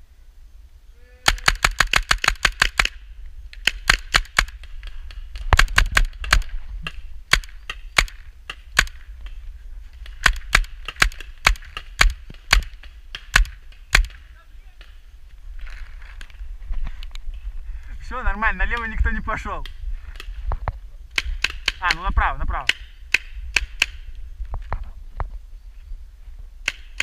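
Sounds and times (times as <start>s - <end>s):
paintball markers firing: 1.2s - 9.4s, 10.0s - 15.0s, 21.1s - 24.1s, 26.6s - 27.0s.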